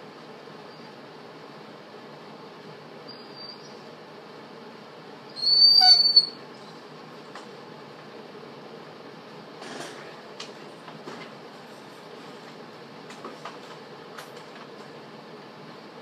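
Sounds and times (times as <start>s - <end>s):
dog whining: 5.4s - 6.4s.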